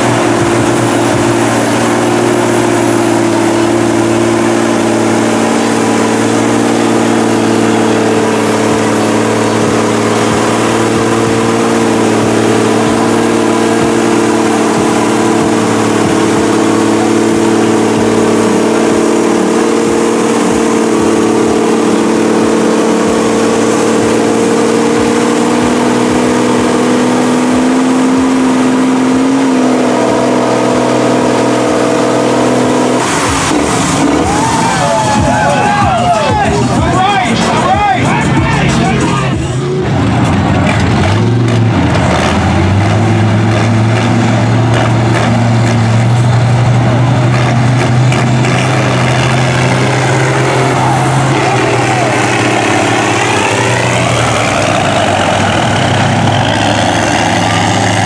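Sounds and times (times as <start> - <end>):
diesel truck engine under load: 0.0 - 58.0.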